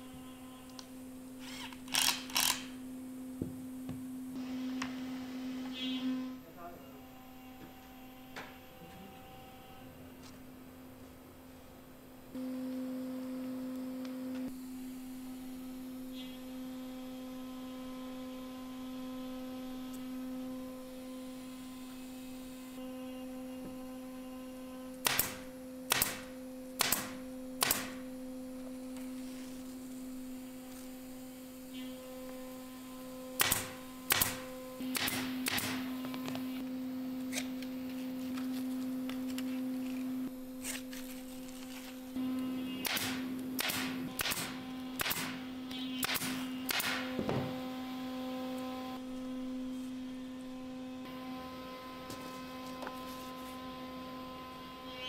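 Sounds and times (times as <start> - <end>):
steady hum: 0.0 - 55.0
pneumatic nailer shots: 1.4 - 2.8, 25.0 - 28.1, 33.3 - 36.0, 42.7 - 47.6.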